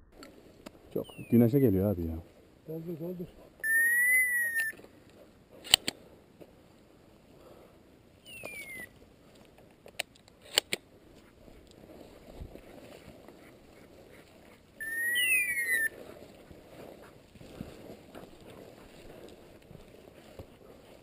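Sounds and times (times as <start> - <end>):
high whistles: 3.6 - 4.8, 8.3 - 8.9, 14.8 - 15.9.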